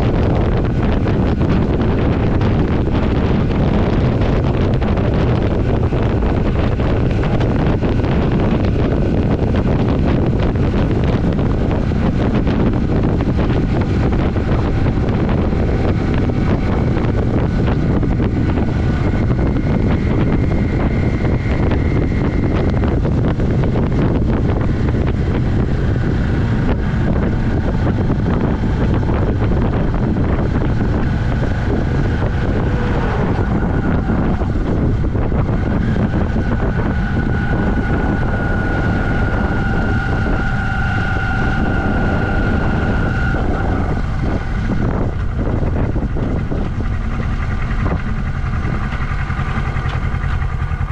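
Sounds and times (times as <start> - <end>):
wind noise on microphone: 0.0 - 50.9.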